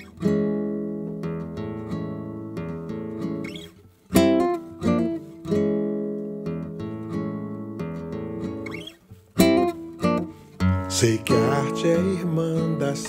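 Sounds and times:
acoustic guitar chords: 0.0 - 13.0.

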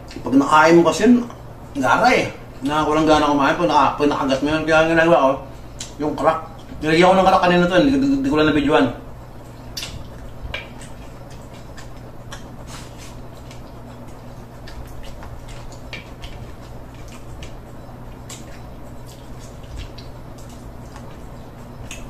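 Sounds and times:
steady low hum: 0.0 - 22.0
person chewing food: 9.4 - 22.0
fingers working food on plate: 9.7 - 22.0.

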